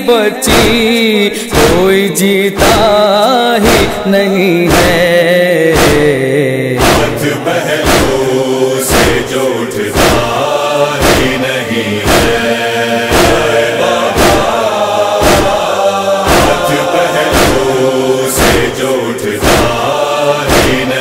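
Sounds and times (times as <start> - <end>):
men chanting in chorus: 0.0 - 21.0
chest-beating strokes: 1.5 - 1.9, 5.8 - 6.1, 6.8 - 21.0.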